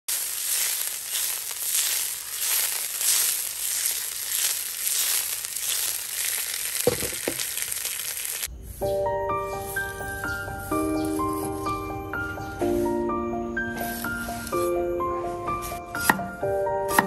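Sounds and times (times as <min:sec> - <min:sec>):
fish sizzling in hot oil: 0:00.1 - 0:08.5.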